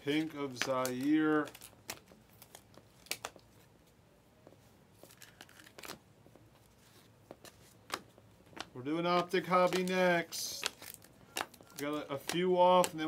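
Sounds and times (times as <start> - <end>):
trading cards rustling: 0.0 - 3.6, 5.0 - 13.0
card snaps: 8.6 - 13.0.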